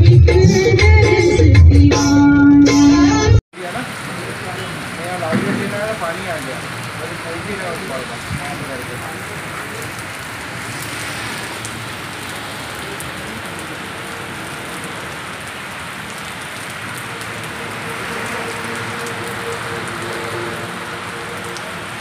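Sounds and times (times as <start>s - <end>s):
heavy rain on wet paving: 3.5s - 22.0s.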